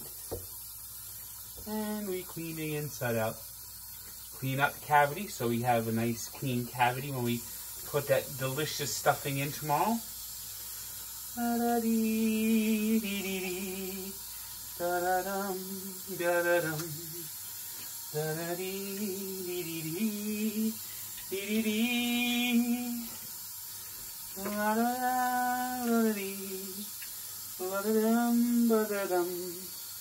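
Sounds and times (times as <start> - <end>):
tap running into sink: 0.0 - 0.7, 24.3 - 24.8
man humming: 14.8 - 17.3.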